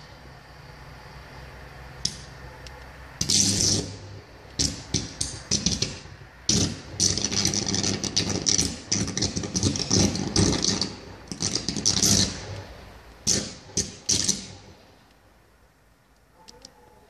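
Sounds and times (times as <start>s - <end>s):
high-voltage cable arcing buzz: 3.2s - 14.8s.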